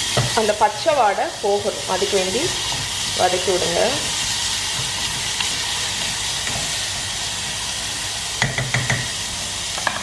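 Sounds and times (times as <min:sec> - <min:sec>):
vegetables sizzling in oil: 0:00.0 - 0:10.0
wooden spoon knocking on pan: 0:08.4 - 0:09.1.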